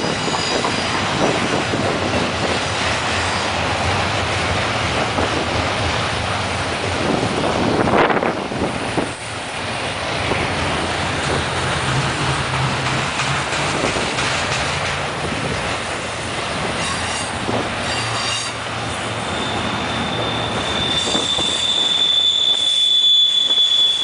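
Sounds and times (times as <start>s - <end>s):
high wheel squeal: 0.0s - 1.3s, 3.1s - 3.6s, 16.8s - 24.0s
freight train rolling past: 0.0s - 24.0s.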